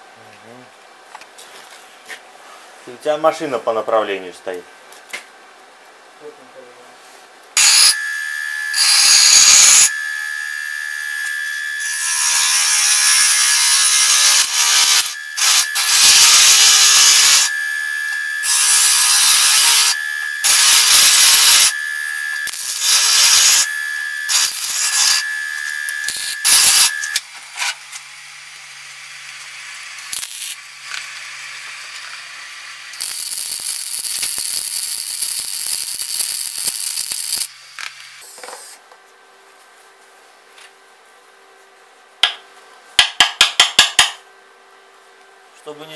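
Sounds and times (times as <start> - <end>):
high whine: 7.6 - 12.8, 14.0 - 31.2
welding sizzle: 7.6 - 38.8
welding crackle: 14.0 - 17.5, 18.1 - 23.7, 24.3 - 38.2.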